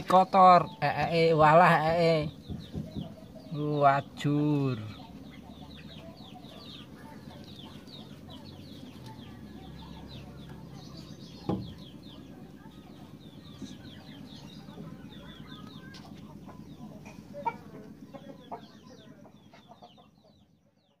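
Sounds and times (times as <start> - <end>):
steady low hum: 0.0 - 20.8
birds chirping: 0.0 - 21.0
thump: 11.4 - 11.8.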